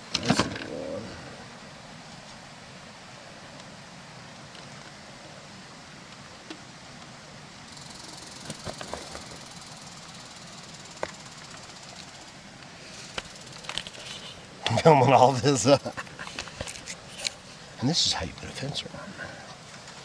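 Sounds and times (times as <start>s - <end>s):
steady outdoor hiss: 0.0s - 20.0s.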